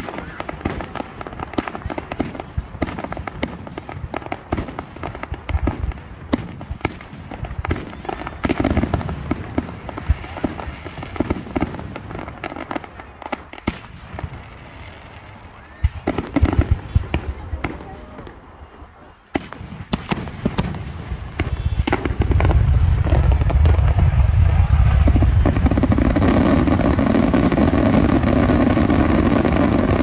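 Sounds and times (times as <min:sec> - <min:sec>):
fireworks bangs: 0:00.0 - 0:30.0
fireworks crackling: 0:00.0 - 0:30.0.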